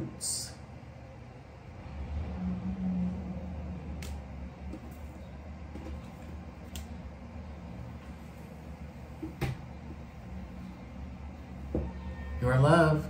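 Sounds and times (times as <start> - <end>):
low hum: 0.0 - 13.0.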